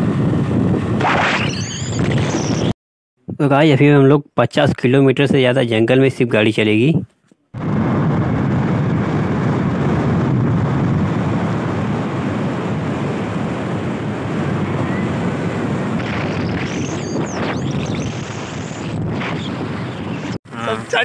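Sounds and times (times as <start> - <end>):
wind rush on microphone: 0.0 - 2.7, 7.6 - 21.0.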